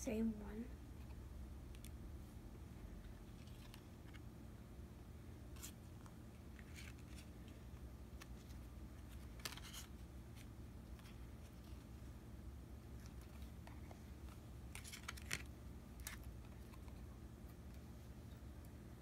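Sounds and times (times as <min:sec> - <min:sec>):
low steady hum: 0:00.0 - 0:19.0
trading cards sliding and flicking: 0:08.2 - 0:11.9, 0:14.2 - 0:17.0.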